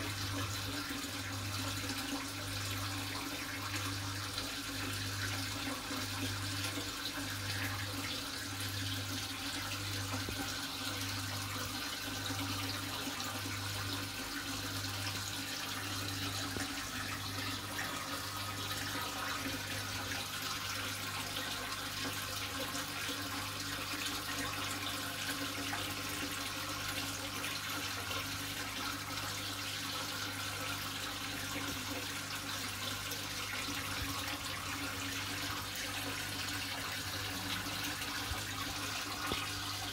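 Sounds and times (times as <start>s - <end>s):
aquarium water bubbling: 0.0s - 39.9s.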